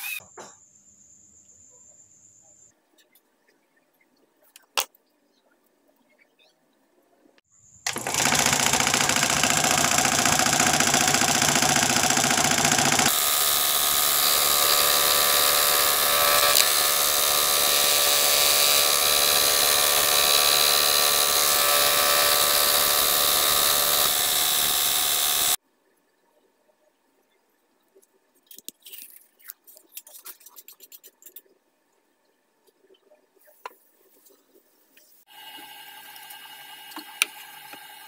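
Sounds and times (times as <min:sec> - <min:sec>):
scroll saw cutting wood: 0:00.0 - 0:00.2, 0:07.9 - 0:25.6.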